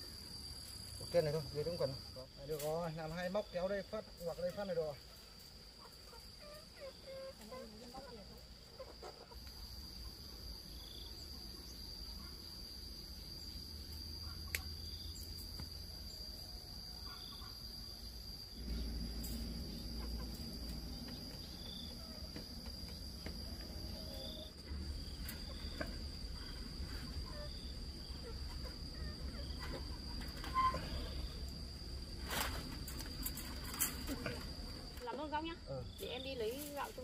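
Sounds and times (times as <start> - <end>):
chickens clucking: 5.7 - 10.4, 19.4 - 30.4.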